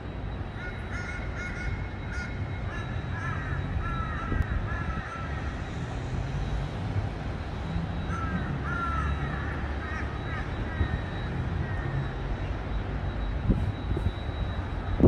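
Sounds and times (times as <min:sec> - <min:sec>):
crow cawing: 0:00.6 - 0:05.6, 0:08.0 - 0:11.0.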